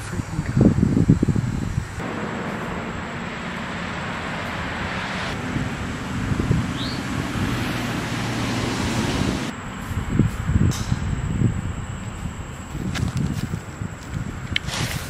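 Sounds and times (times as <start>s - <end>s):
low hum: 2.0s - 9.5s
steady rushing noise: 2.0s - 9.5s.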